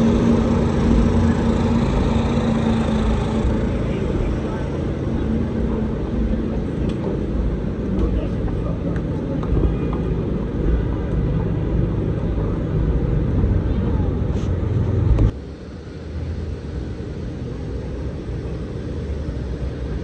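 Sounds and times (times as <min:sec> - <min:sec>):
voices of passers-by: 0:00.0 - 0:15.4
low traffic rumble: 0:00.0 - 0:20.0.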